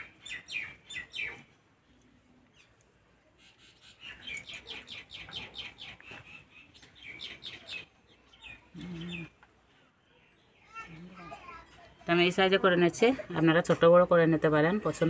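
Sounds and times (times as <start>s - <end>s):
small bird chirping: 0.0s - 1.5s, 3.4s - 9.4s.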